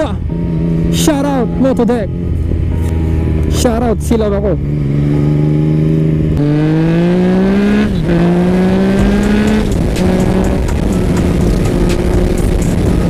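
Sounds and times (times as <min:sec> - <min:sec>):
motorcycle engine accelerating: 0:00.0 - 0:13.0
wind noise on microphone: 0:07.8 - 0:13.0.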